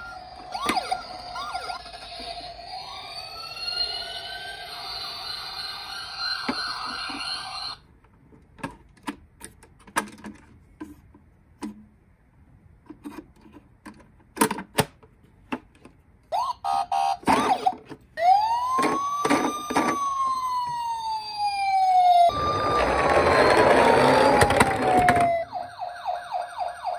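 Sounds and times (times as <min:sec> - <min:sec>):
toy electronic siren: 0:00.0 - 0:07.8, 0:16.3 - 0:26.9.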